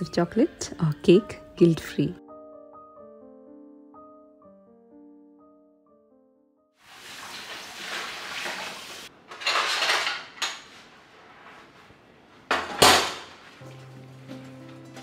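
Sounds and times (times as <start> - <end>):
sponge scrubbing and running water: 6.8 - 9.1
dishes clattering: 7.9 - 10.8, 12.5 - 15.0.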